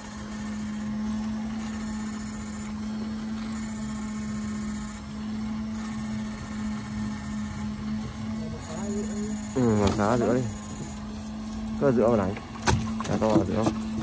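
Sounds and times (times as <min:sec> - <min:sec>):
steady electrical hum: 0:00.0 - 0:14.0.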